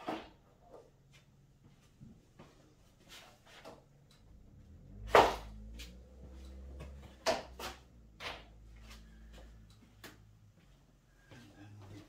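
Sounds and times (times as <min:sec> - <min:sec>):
low steady hum: 0:03.9 - 0:12.0.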